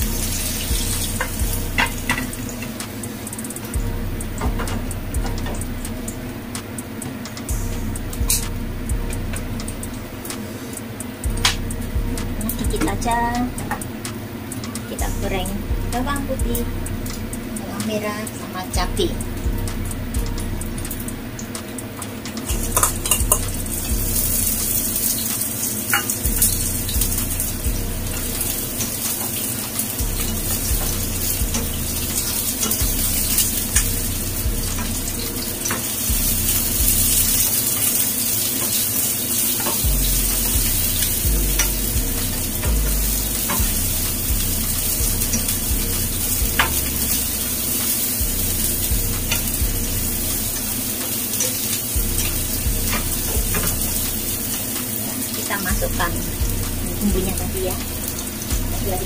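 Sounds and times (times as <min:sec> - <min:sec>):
food sizzling in hot oil: 0:00.0 - 0:08.6, 0:20.8 - 0:59.0.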